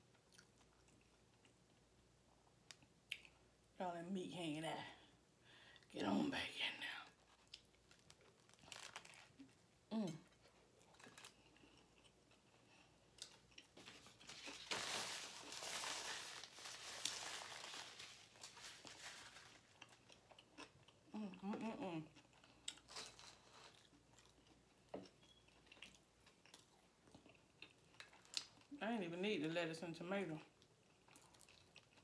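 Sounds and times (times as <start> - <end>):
crunchy chewing: 30.8 - 32.0.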